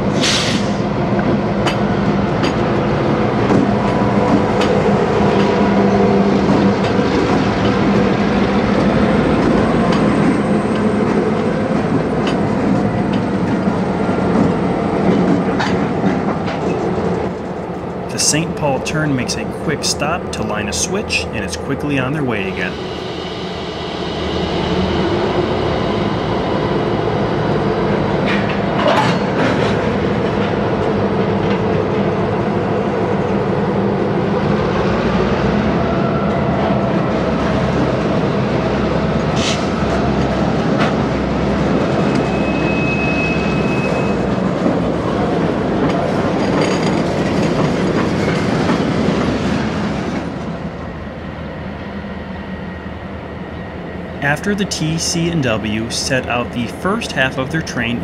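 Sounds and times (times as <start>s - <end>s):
diesel locomotives running: 0.0s - 58.0s
wheels clanking on rails: 39.2s - 50.5s
high-pitched wheel squeal: 42.1s - 44.3s.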